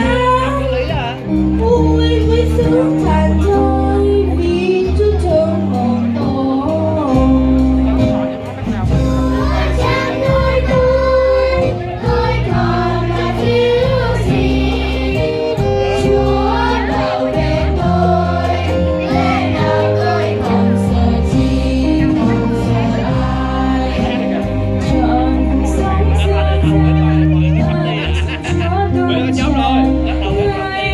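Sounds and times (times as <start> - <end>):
instrumental bass notes: 0.0 - 30.9
children's choir singing a hymn: 8.8 - 28.3.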